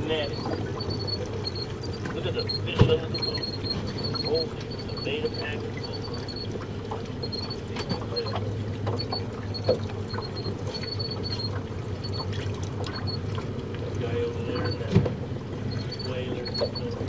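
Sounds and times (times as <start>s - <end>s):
boat engine idling: 0.0s - 17.0s
water sloshing at hull: 0.0s - 17.0s.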